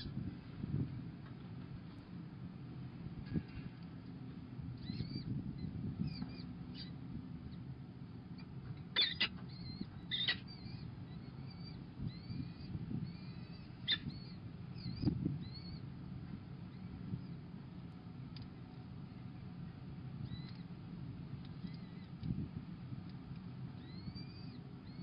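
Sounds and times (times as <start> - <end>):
falcon chicks cheeping: 8.4 - 15.9.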